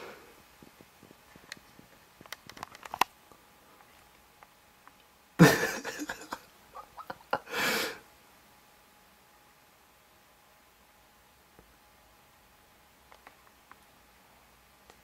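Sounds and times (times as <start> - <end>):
person breathing out hard: 7.5 - 8.0.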